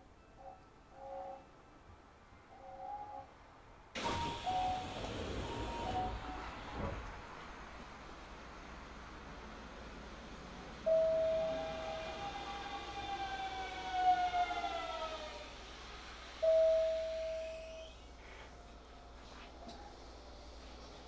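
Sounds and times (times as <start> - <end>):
train motors whining: 9.6 - 19.0.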